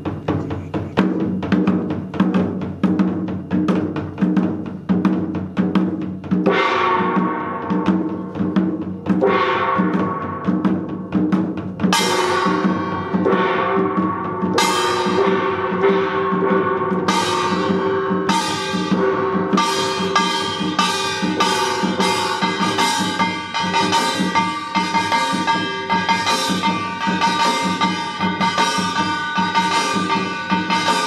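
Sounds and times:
barrel drums beating: 0.0 - 31.0
metal gong strokes: 11.9 - 31.0.

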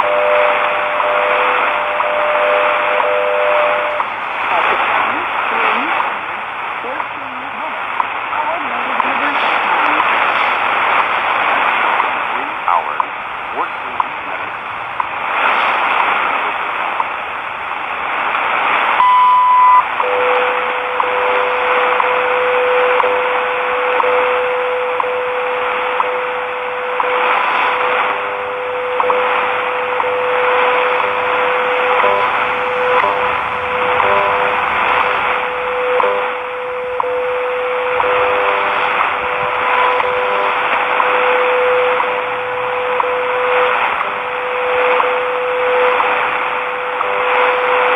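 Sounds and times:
lower steady tone: 0.0 - 47.9
radio static hiss: 0.0 - 47.9
short high beep: 19.0 - 20.3.

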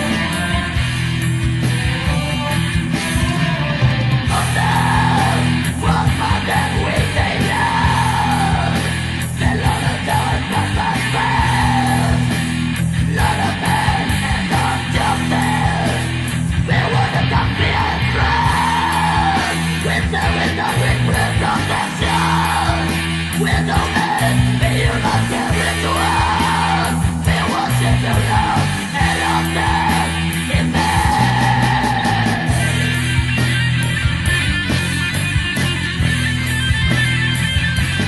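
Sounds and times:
distorted guitars: 0.0 - 38.0
drums: 0.0 - 38.0
harsh vocal cries: 3.3 - 33.2.

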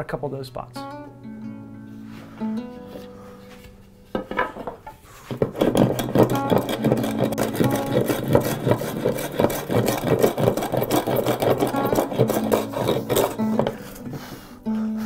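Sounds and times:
hand plane strokes on wood: 5.1 - 15.0.

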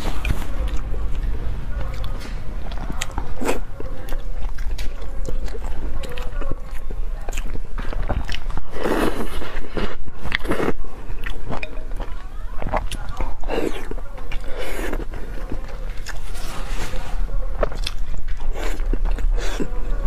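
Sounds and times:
chewing with wet mouth clicks: 0.0 - 16.4, 17.5 - 20.0
slurping noodles: 8.7 - 10.8.

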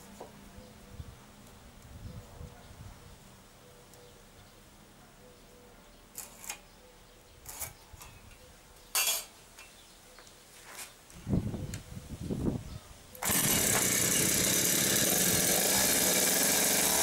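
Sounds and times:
tools scraping and clicking on boards: 6.2 - 6.7, 7.4 - 8.2.

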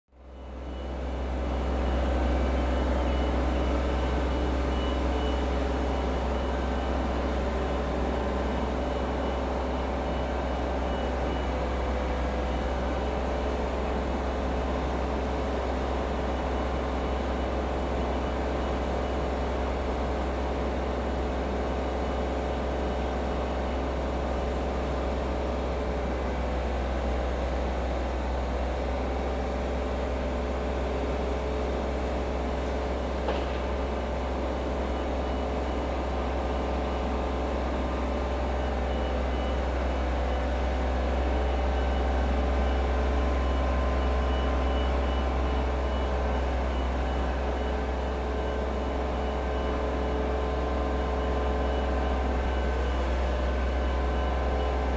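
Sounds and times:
diesel train rumbling: 45.3 - 54.9.

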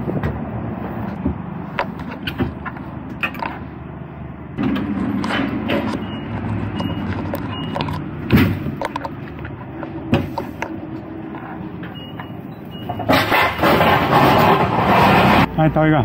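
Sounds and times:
pallet jack rolling: 4.6 - 10.6, 11.2 - 15.5.

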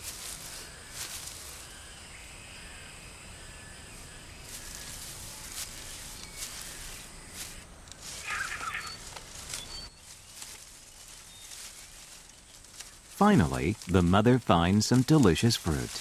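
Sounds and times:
leaf litter rustling underfoot: 0.0 - 1.9, 4.0 - 16.0
high insect buzz: 0.0 - 9.7
faint bird chirps: 0.3 - 12.7.

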